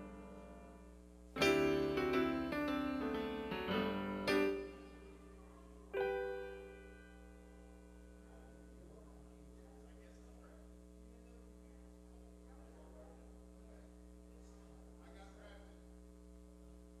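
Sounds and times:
piano notes and chords: 0.0 - 8.8.

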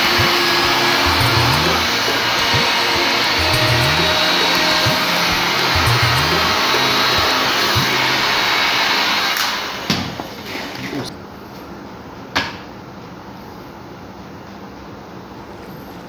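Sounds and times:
hot-air blower running: 0.0 - 10.8.

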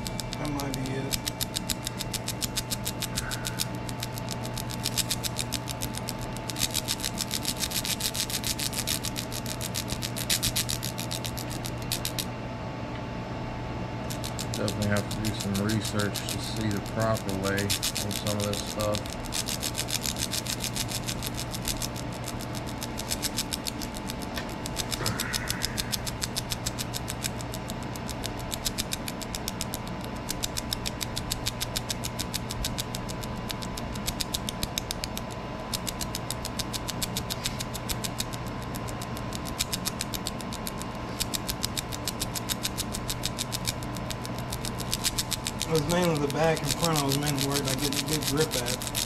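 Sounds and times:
fast even ticking: 0.0 - 12.3, 14.0 - 49.0
laser engraver hum: 0.0 - 12.7, 13.3 - 49.0.

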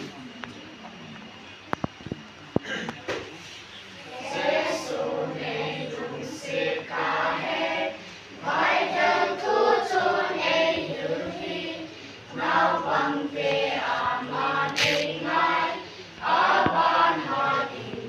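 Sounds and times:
children's choir singing: 4.0 - 18.0.

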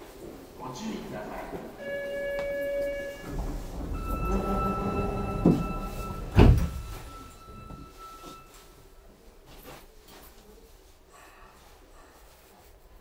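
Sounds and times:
sliding doors shutting with thud: 3.0 - 8.4
steady electronic tone: 4.0 - 8.6.

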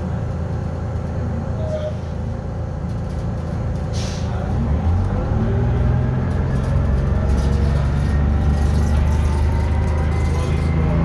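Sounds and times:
bus diesel engine accelerating: 0.0 - 11.0
short hiss: 3.9 - 4.3.

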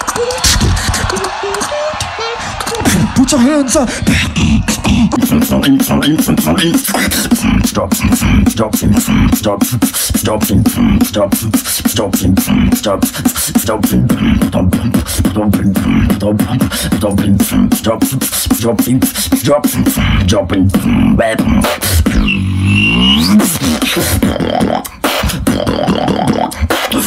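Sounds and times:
beatboxing drum hits and clicks: 0.0 - 27.0
swooping whistle-like tone: 22.0 - 23.5.

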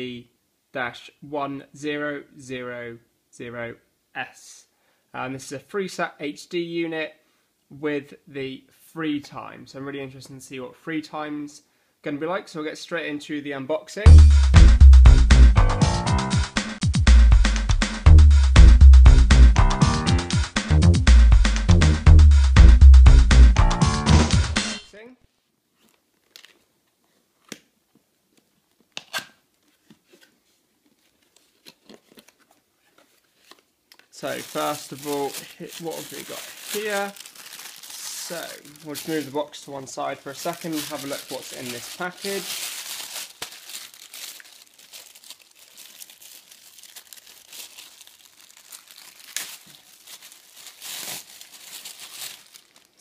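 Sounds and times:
plastic bag crinkling: 34.1 - 53.0.

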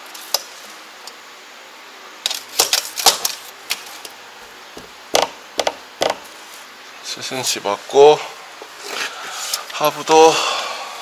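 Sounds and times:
hard material clicking and knocking: 4.4 - 6.3.

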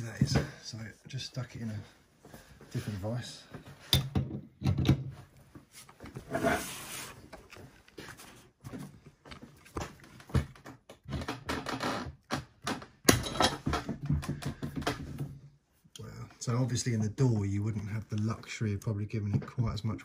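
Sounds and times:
metal scraping: 6.2 - 7.1.

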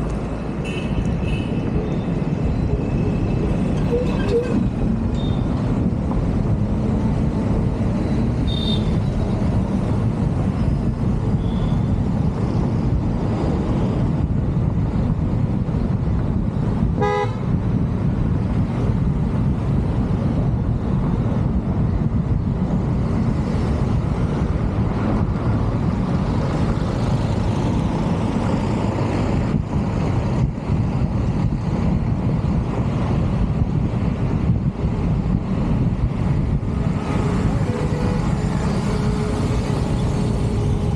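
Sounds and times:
car road noise rumble: 0.0 - 40.9.

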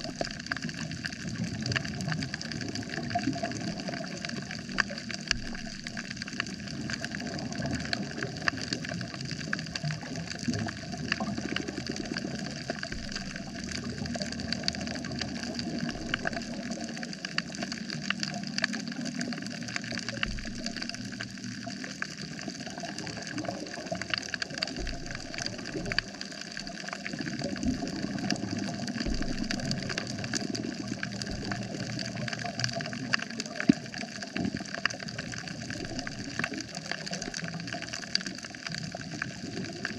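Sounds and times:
low rumble of moving water: 0.0 - 39.9
snapping shrimp crackle: 10.6 - 39.2.

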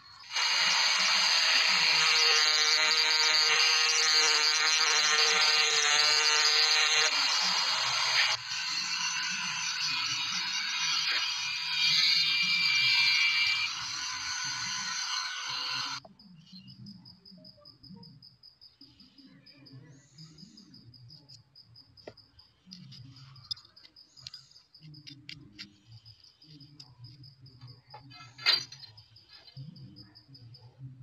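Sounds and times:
cricket chirping: 8.5 - 31.0.

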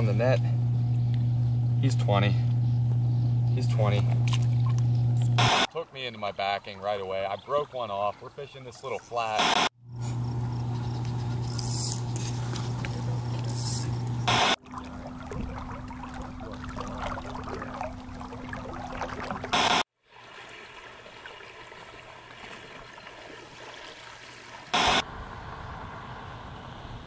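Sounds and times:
faint running water: 3.6 - 9.4, 11.5 - 24.7
static noise bursts: 5.3 - 5.7, 9.3 - 9.7, 13.5 - 14.6, 19.5 - 19.8, 24.8 - 27.0.

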